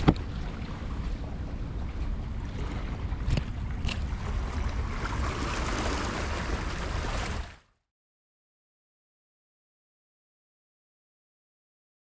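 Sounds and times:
wind buffeting microphone: 0.0 - 7.5
low rumble: 0.0 - 7.6
sea water washing on shore: 0.0 - 7.7.

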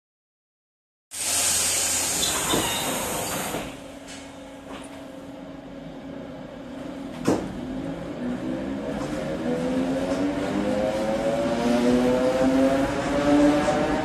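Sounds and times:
air hissing: 1.1 - 3.8.

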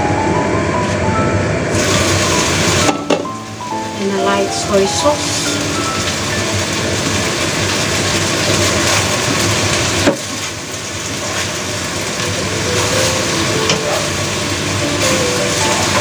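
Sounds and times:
food sizzling in a wok: 1.7 - 16.0.

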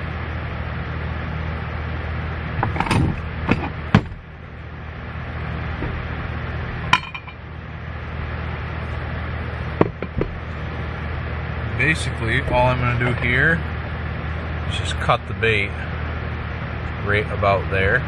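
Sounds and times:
steady low hum: 0.0 - 18.0
metal clinks and knocks: 6.9 - 7.4.

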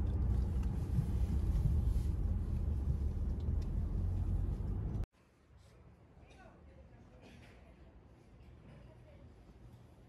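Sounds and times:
ferry engine low rumble: 0.0 - 5.1.

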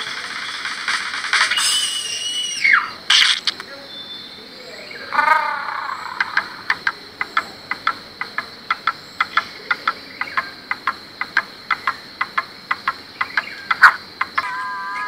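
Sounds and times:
sharp chirp-like clicks: 0.0 - 3.7, 6.0 - 14.6
faint steady high tone: 3.7 - 5.1, 14.4 - 15.0.

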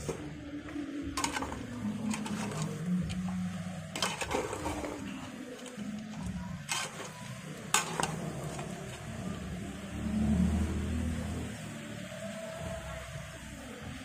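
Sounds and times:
food sizzling: 1.0 - 14.0
metal ladle scraping a pot: 1.1 - 9.3.

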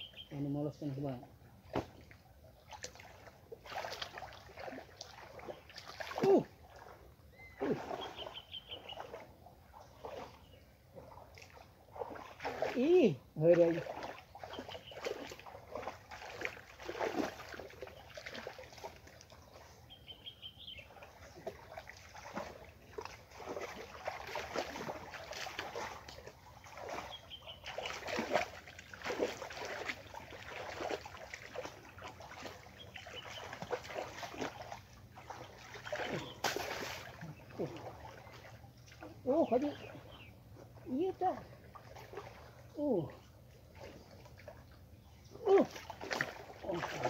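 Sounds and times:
bird chirps: 0.0 - 0.6, 7.3 - 9.2, 14.4 - 15.3, 19.5 - 21.1, 27.0 - 28.1, 32.8 - 33.6, 35.8 - 36.5
muddy water splashing: 0.0 - 47.0.

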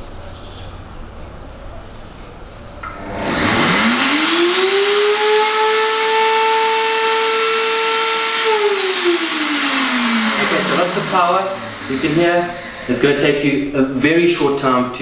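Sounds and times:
blender motor whining: 2.8 - 13.9.

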